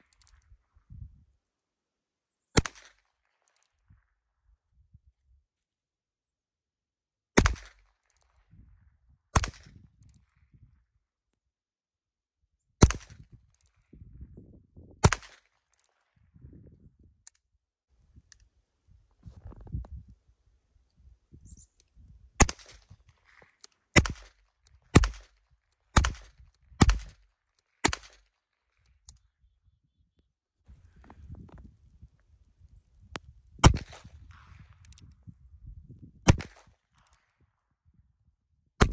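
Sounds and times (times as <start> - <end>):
revolver gunshots: 24.0 - 25.3, 26.0 - 27.2, 33.6 - 34.5, 36.3 - 36.7.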